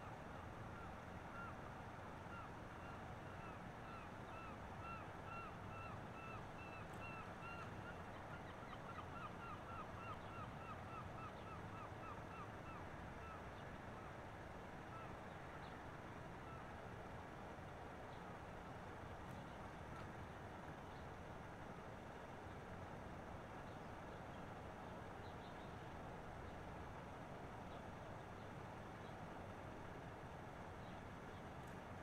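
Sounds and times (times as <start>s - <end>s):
bird calling: 2.3s - 13.4s.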